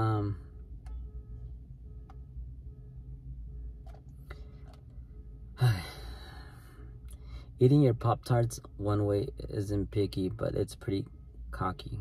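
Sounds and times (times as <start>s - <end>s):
person sighing: 5.6s - 6.9s.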